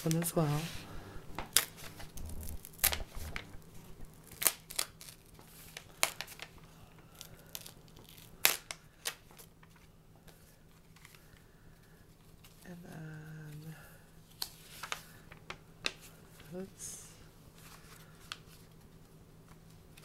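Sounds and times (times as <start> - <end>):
paper rustling: 0.0 - 6.6
paper crackling and ripping: 0.0 - 9.9.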